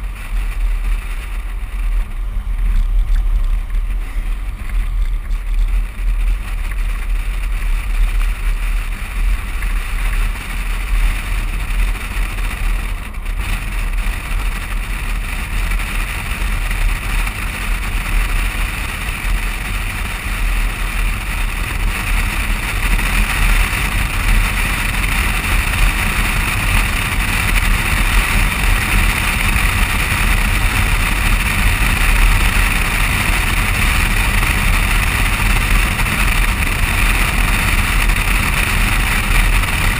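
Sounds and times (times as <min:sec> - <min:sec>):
deep steady rumble: 0:00.0 - 0:39.9
road noise: 0:00.0 - 0:39.9
rushing wind: 0:00.0 - 0:39.9.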